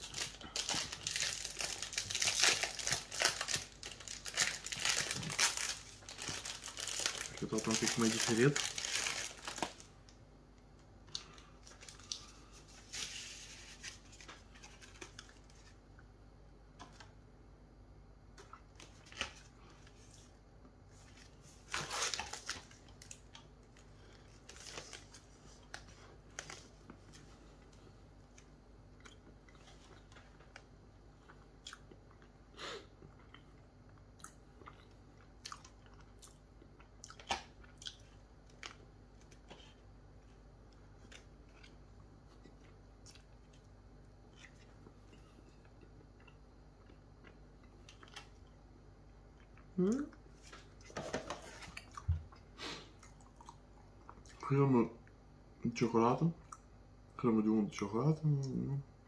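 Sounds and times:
person chewing: 0:26.8 - 0:30.6, 0:31.2 - 0:39.8, 0:41.0 - 0:43.6, 0:44.2 - 0:48.6, 0:51.6 - 0:54.4.

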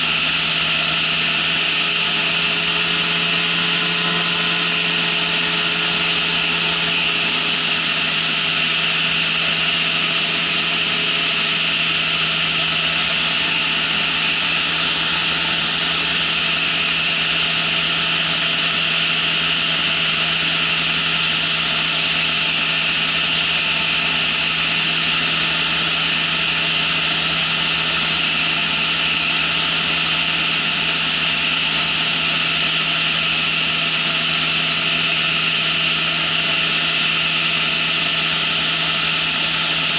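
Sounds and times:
engine and propeller droning: 0:00.0 - 0:39.9.

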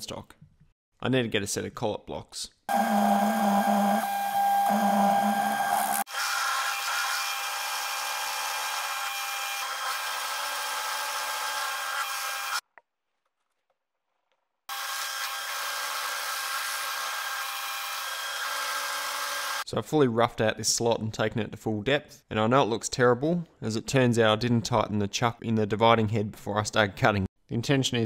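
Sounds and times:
milling machine cutting whine: 0:02.7 - 0:06.5.

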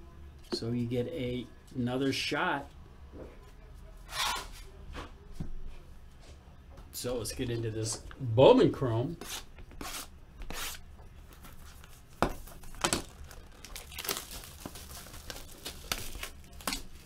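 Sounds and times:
wrappers crinkling: 0:11.2 - 0:17.0
card packs being torn open: 0:11.8 - 0:17.0.

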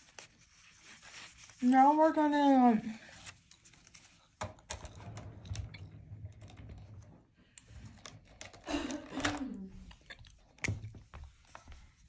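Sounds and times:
hands handling drawing supplies: 0:07.5 - 0:12.0.

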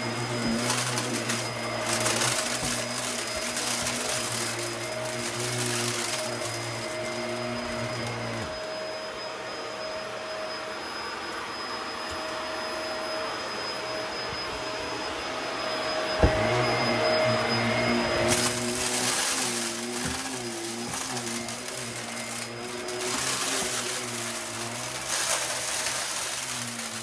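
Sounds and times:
vacuum sucking up debris: 0:00.0 - 0:08.9, 0:16.3 - 0:27.0
vacuum cleaner whining: 0:00.0 - 0:27.0.

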